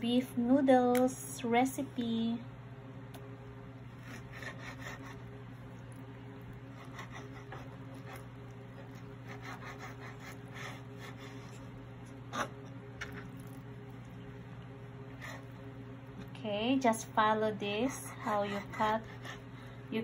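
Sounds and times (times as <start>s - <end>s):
steady low hum: 0.0s - 20.0s
knife slicing on cutting board: 4.0s - 5.2s, 6.7s - 11.7s.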